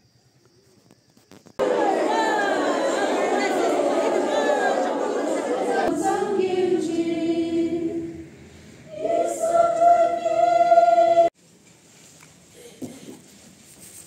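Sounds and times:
women singing a hymn: 1.6 - 11.4.

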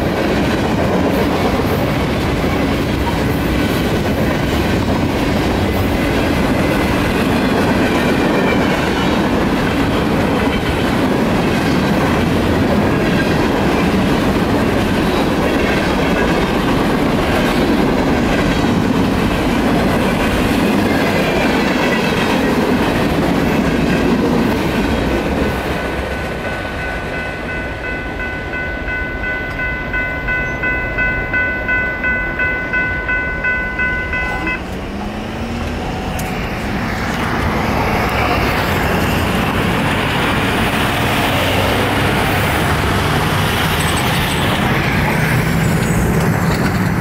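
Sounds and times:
road traffic passing: 0.0 - 47.0
crossing bell ringing: 25.9 - 35.3
train wheels clattering: 34.6 - 47.0.

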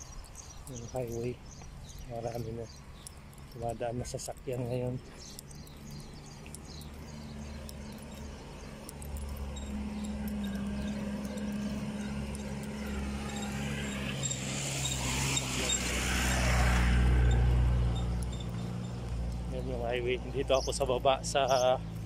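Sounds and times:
low engine hum: 0.0 - 22.0
vehicle driving past: 5.2 - 22.0.

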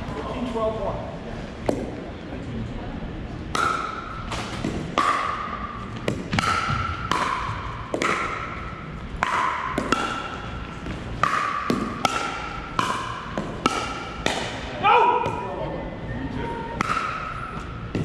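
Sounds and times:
paddles hitting plastic ball: 3.5 - 8.5, 9.1 - 14.7.

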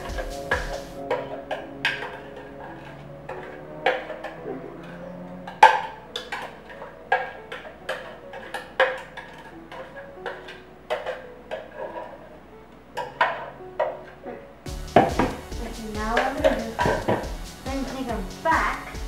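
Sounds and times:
soft background music: 0.0 - 19.0
dishes and utensils clinking: 0.4 - 12.2, 13.0 - 14.2.

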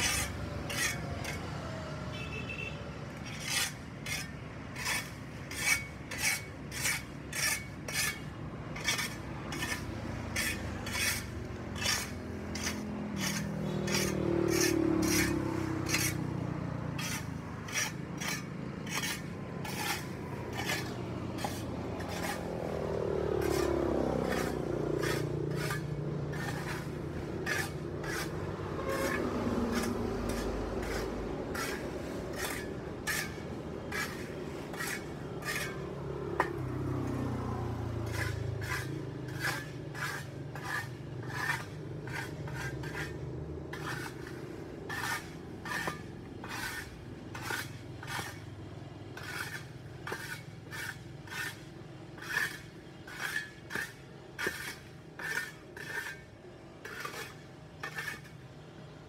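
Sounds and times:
tool scraping dirt off pavement: 0.0 - 2.0, 2.6 - 59.0
vehicle passing: 8.6 - 51.8.

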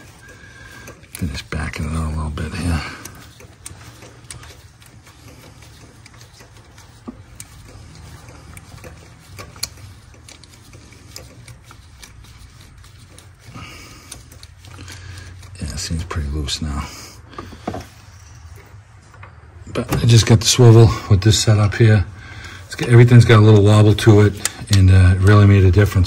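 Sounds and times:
ratchet clicking: 0.0 - 15.6.

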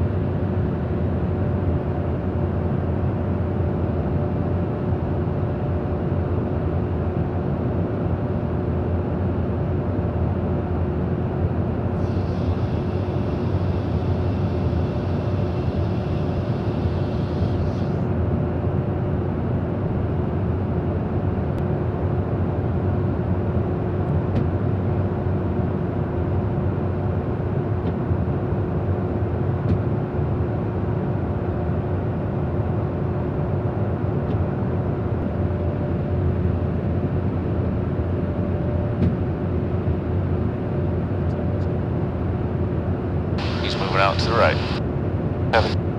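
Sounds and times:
aircraft engine and airflow rumble: 0.0 - 45.9
steady hums: 43.4 - 45.9.

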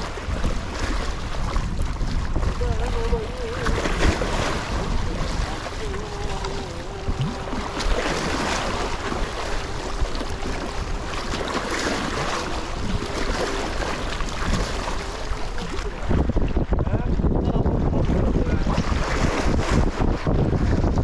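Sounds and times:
small waves splashing on rocks: 0.0 - 16.4
wind buffeting microphone: 0.0 - 21.0.

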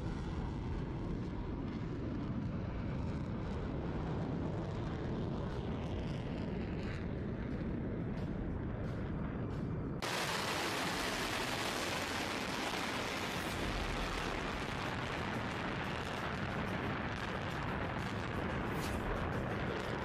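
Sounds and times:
rocket motors roaring: 10.0 - 20.0.

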